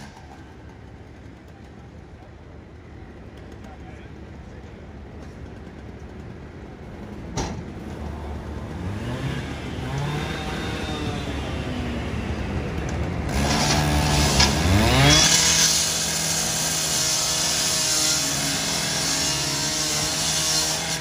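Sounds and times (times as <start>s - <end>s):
cut-off saw cutting sheet metal: 8.8s - 11.9s, 13.3s - 21.0s.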